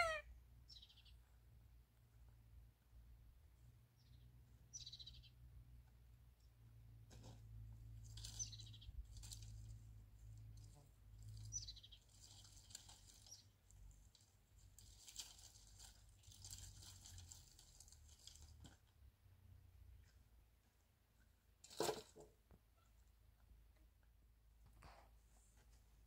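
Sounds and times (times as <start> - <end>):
bird calls falling in pitch: 0.0 - 0.2
faint bird chirps: 0.0 - 1.4, 4.0 - 5.4.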